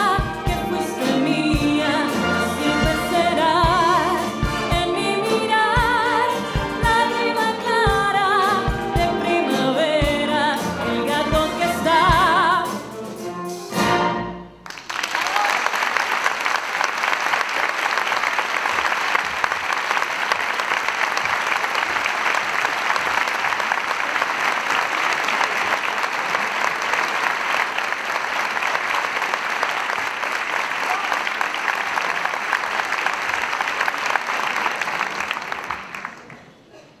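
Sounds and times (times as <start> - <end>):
audience applauding: 14.6 - 36.7.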